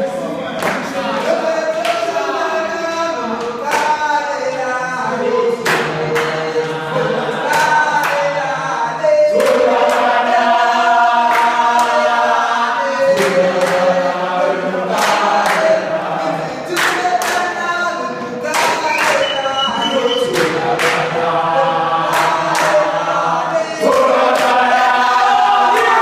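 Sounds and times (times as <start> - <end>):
group singing in chorus: 0.0 - 26.0
sharp claps or stamps: 0.6 - 0.9, 3.4 - 4.0, 5.6 - 6.4, 16.7 - 17.5, 18.5 - 19.3, 20.2 - 21.1, 22.1 - 22.8.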